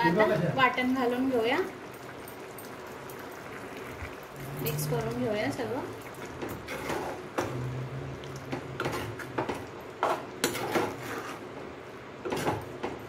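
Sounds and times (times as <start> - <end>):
ladle scraping and clinking pot: 6.2 - 11.5.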